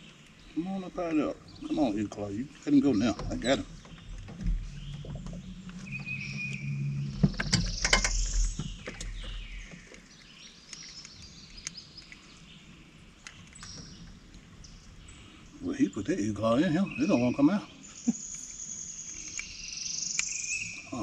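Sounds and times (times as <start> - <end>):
low steady hum: 0.0 - 10.5
handling clicks and knocks: 7.2 - 12.2.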